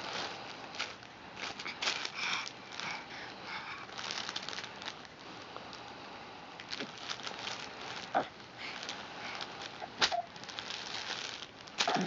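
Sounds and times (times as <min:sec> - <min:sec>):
cloth book crinkling: 0:00.0 - 0:03.0, 0:03.8 - 0:05.8, 0:06.6 - 0:12.0.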